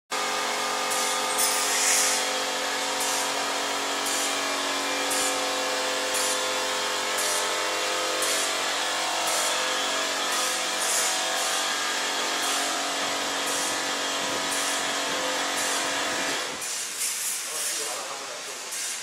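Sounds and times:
motor and grinding wheel whine: 0:00.2 - 0:16.6
short grinding rasp: 0:01.3 - 0:02.4.

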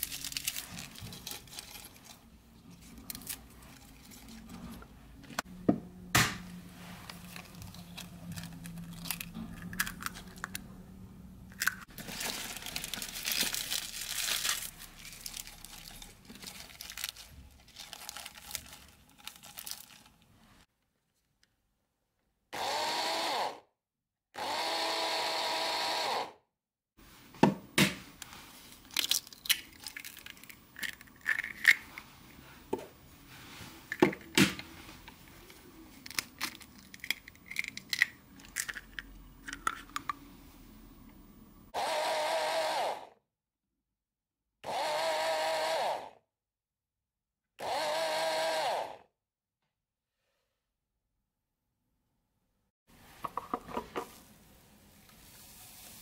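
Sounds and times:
spinach leaves rustling: 0:00.0 - 0:04.4, 0:11.9 - 0:20.2
mini chopper motor running: 0:22.6 - 0:23.6, 0:24.4 - 0:26.4, 0:41.8 - 0:43.1, 0:44.7 - 0:46.1, 0:47.6 - 0:49.0.

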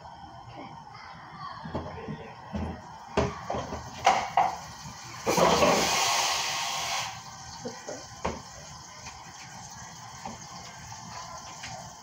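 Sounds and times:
kitchen tap running: 0:02.5 - 0:12.0.

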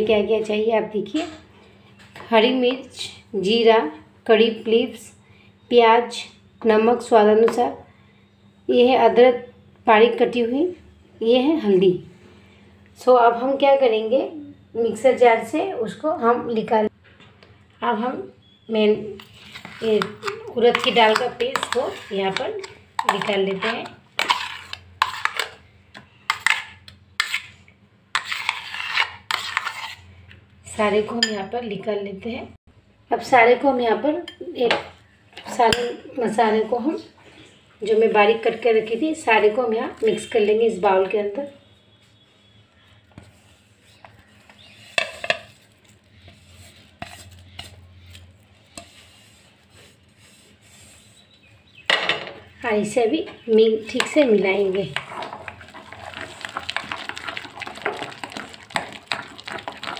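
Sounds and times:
spoon scraping steel jar: 0:19.2 - 0:25.6, 0:26.3 - 0:27.5, 0:28.2 - 0:30.1.

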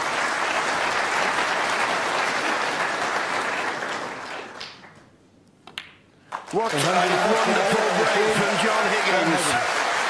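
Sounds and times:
audience applauding: 0:00.0 - 0:05.0, 0:06.3 - 0:10.0.

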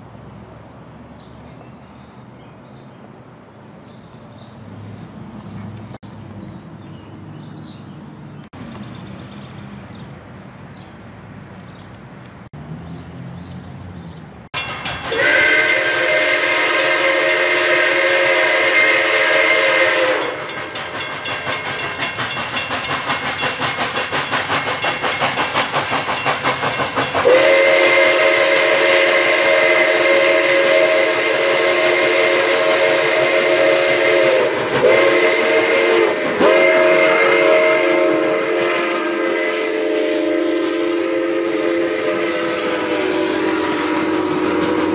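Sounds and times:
locomotive horn chord: 0:15.1 - 0:20.6, 0:27.2 - 0:44.9.

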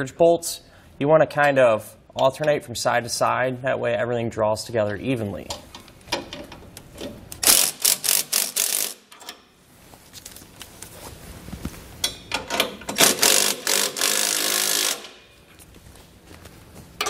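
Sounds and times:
cordless power ratchet running: 0:07.4 - 0:09.0, 0:13.0 - 0:15.2.

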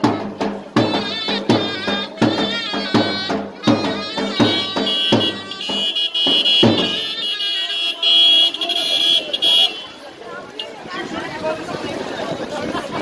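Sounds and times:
drum beating: 0:00.0 - 0:13.0
shrill reedy pipe melody: 0:00.8 - 0:09.9.

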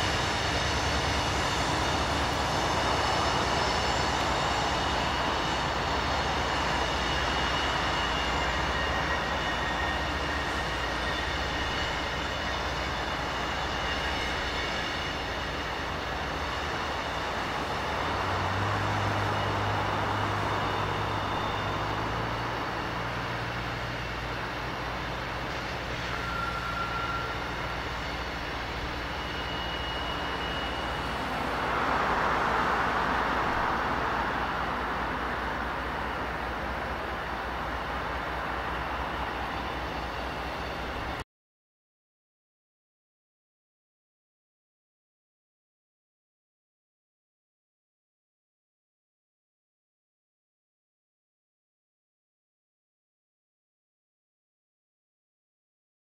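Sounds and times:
diesel locomotive engine drone: 0:00.0 - 0:41.2
rumble of train cars: 0:00.0 - 0:41.2
wheel flange squeal: 0:00.1 - 0:24.4, 0:25.4 - 0:33.0.

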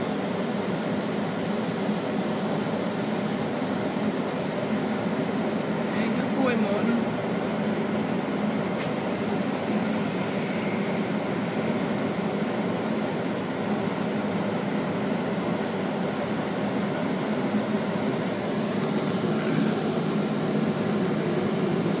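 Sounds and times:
low mechanical drone: 0:13.7 - 0:22.0.

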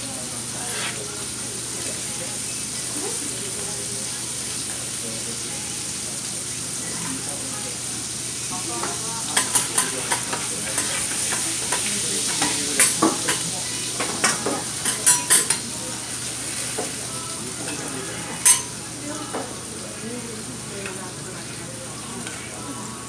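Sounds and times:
meat sizzling on a griddle: 0:00.0 - 0:23.0
metal spatulas scraping and clacking: 0:09.4 - 0:13.4, 0:14.0 - 0:15.6.

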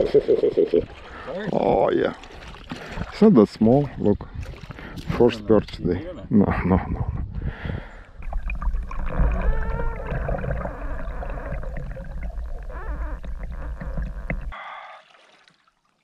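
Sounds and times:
muffled underwater rumble: 0:08.2 - 0:14.6
warbling tones: 0:08.2 - 0:14.6.

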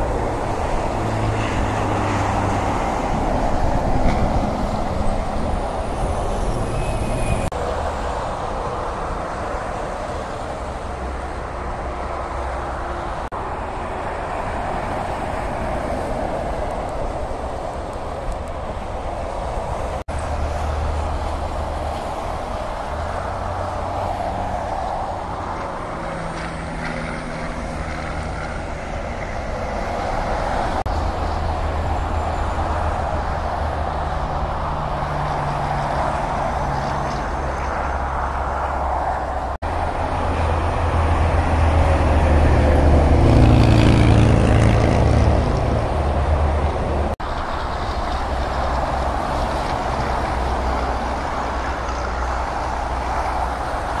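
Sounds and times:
highway traffic: 0:00.0 - 0:54.0
vehicle passing close: 0:18.8 - 0:54.0.

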